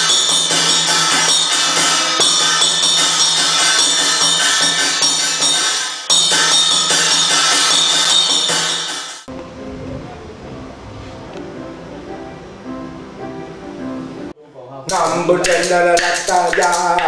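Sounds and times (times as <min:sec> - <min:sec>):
low hum: 0:09.3 - 0:14.3.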